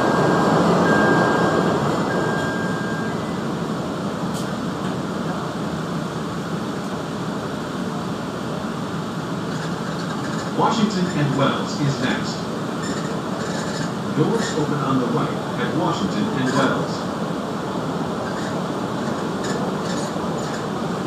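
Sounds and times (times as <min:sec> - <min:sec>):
high steady beeping tone: 0:00.0 - 0:03.4
train car rumbling hum: 0:00.0 - 0:21.0.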